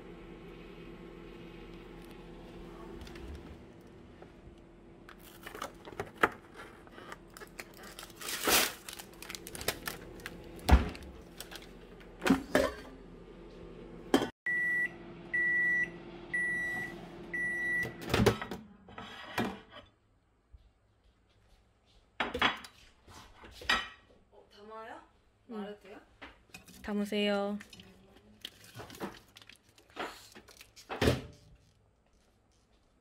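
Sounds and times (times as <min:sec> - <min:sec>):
microwave oven humming: 0:00.0 - 0:18.8
plastic packaging crinkling: 0:05.1 - 0:11.8, 0:27.6 - 0:30.9
microwave high beeps: 0:14.5 - 0:18.1.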